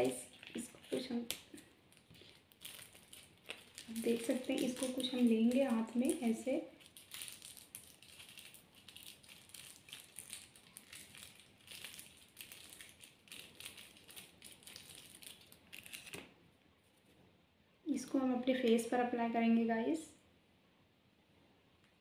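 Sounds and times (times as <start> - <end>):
plastic sachet crinkling: 0.0 - 16.3.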